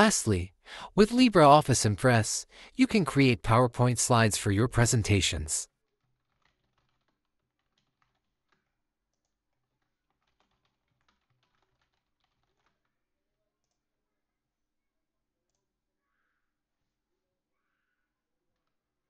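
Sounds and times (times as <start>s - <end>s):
faint keyboard typing: 4.8s - 14.0s.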